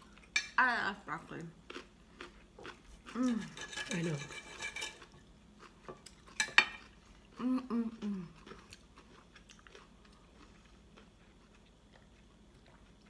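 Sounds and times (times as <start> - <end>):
faint chewing: 1.4 - 3.7, 5.0 - 13.0
cutlery clinking on plate: 6.4 - 6.8.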